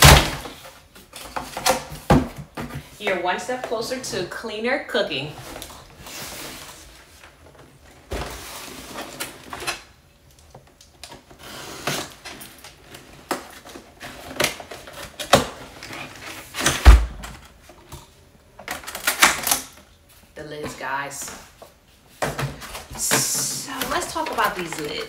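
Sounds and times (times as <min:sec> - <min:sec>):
cardboard rustling and scraping: 0:05.4 - 0:09.9, 0:11.2 - 0:18.0.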